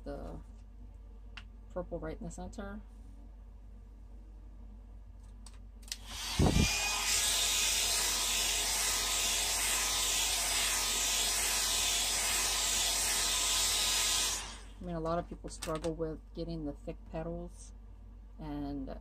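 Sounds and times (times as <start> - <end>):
hair dryer blowing: 6.0 - 14.8.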